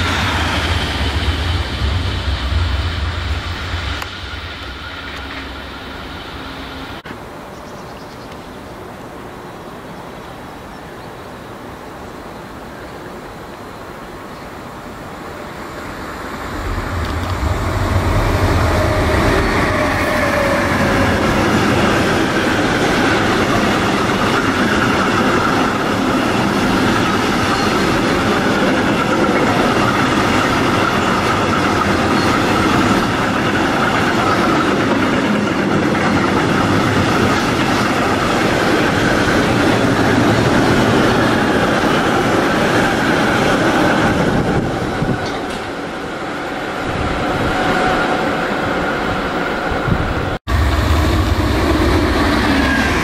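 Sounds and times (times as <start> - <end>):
freight train passing: 0.0 - 10.0, 11.5 - 53.0
steel wheels rolling on rails: 15.7 - 48.3.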